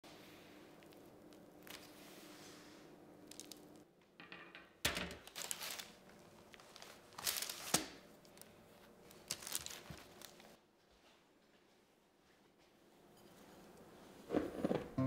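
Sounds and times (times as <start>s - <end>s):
baking paper crinkling: 3.3s - 3.7s, 5.1s - 10.6s.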